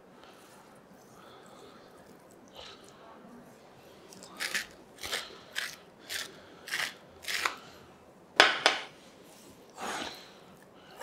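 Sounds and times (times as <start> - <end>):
salt mill grinding: 4.4 - 7.6.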